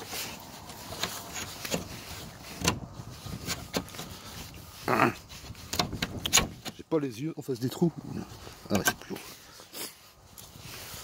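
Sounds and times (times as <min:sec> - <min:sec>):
bolt scraping as slid: 0:00.0 - 0:04.6, 0:05.3 - 0:06.8.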